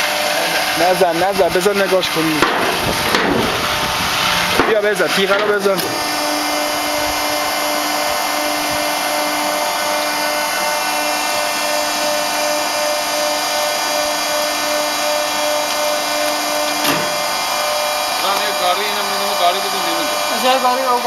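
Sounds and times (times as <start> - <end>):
machine motor drone with whine: 0.0 - 21.0
knock: 2.4 - 3.4.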